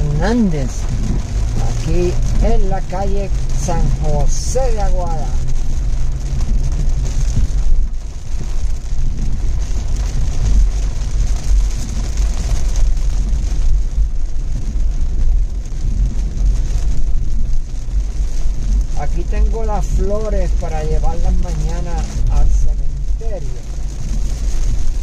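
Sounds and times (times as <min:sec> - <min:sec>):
car engine and tyres rumbling: 0:00.0 - 0:25.0
rain hissing: 0:00.0 - 0:25.0.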